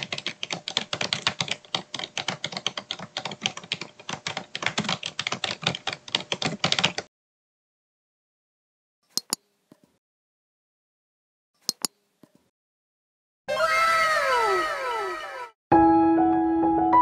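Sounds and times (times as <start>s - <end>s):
fast typing on keyboard: 0.0s - 7.1s.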